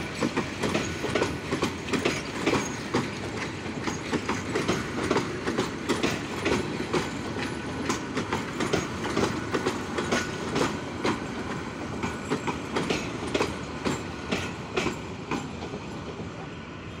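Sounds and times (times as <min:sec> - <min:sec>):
train wheels clicking on rail joints: 0:00.0 - 0:16.5
train rumble: 0:00.0 - 0:17.0.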